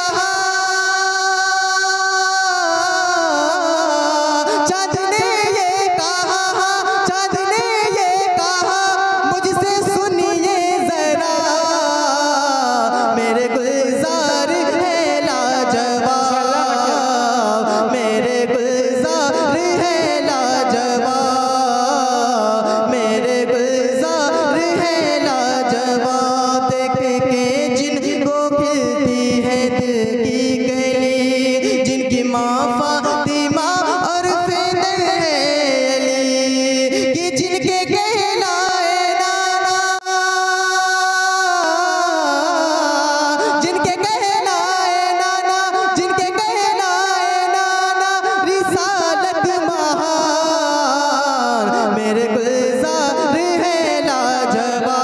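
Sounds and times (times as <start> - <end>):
man singing: 0.0 - 55.0.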